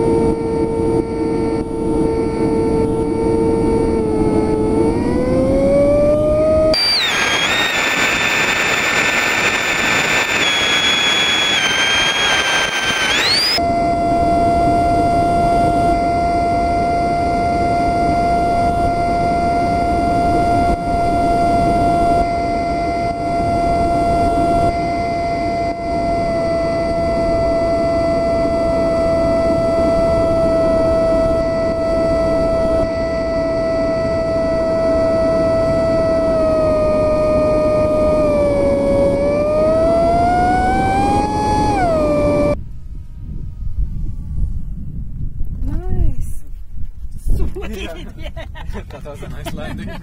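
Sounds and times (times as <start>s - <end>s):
electric motor and propeller whining: 0.0s - 45.9s
rush of wind: 0.0s - 50.0s
rushing air noise: 6.5s - 13.6s.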